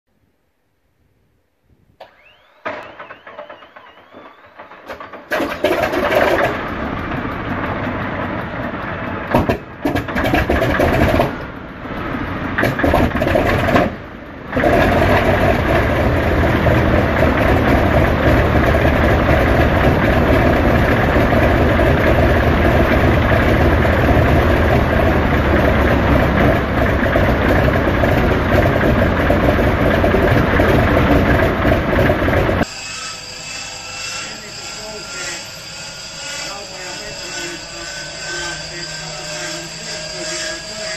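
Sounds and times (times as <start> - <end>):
starter motor whine: 2.0 - 8.6, 12.6 - 32.7
radial aircraft engine running: 2.1 - 32.7.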